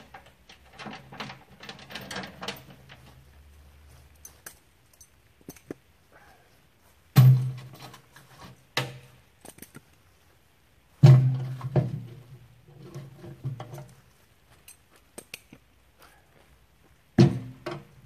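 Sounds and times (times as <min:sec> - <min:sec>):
wood thudding into metal cart: 0:07.2 - 0:08.0, 0:11.0 - 0:12.2, 0:17.2 - 0:17.9.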